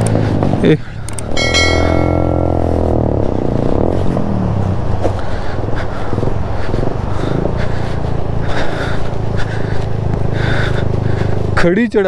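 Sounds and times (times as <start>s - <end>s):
motorcycle engine under load: 0.0s - 5.3s.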